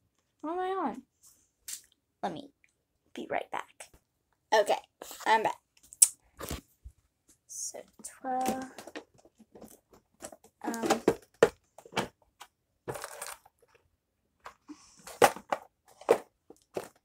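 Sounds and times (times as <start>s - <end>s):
plastic toys clicking and rustling: 8.3s - 13.8s.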